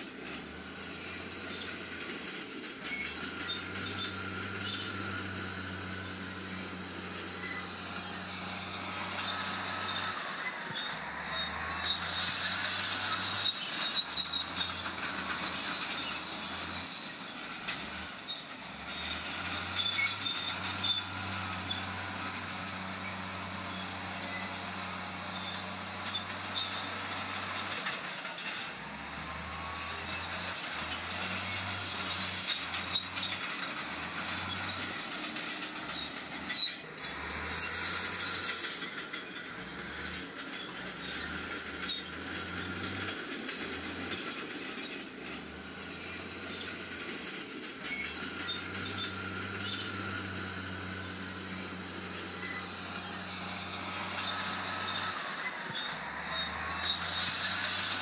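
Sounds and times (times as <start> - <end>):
bulldozer engine running: 0.0 - 58.0
bulldozer tracks squealing and rattling: 0.0 - 58.0.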